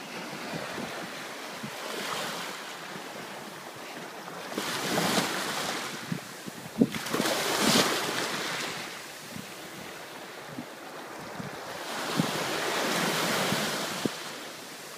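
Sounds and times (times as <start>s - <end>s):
surf washing over sand: 0.0s - 14.9s
wind bumps on microphone: 4.6s - 9.9s, 10.5s - 14.3s.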